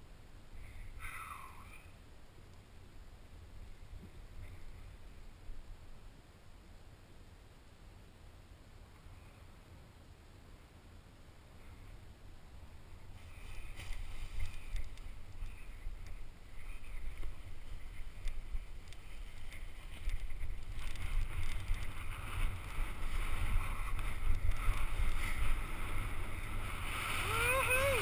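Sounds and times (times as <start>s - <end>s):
wind buffeting microphone: 13.0s - 28.0s
clicks and rustles: 13.4s - 26.1s.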